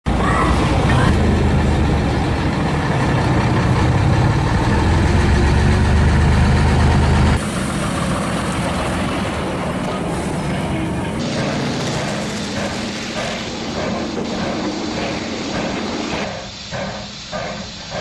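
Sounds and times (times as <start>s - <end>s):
diesel locomotive engine droning: 0.0s - 18.0s.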